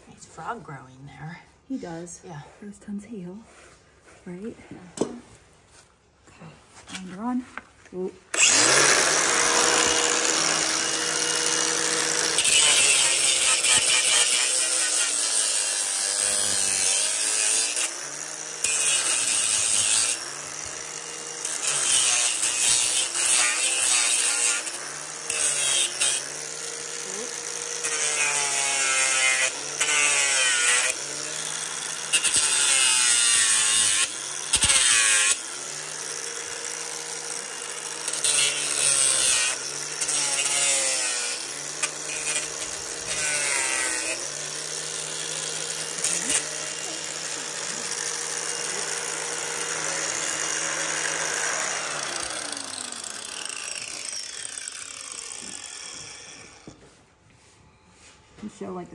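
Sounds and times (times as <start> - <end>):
angle grinder grinding hoof: 0.0 - 58.9.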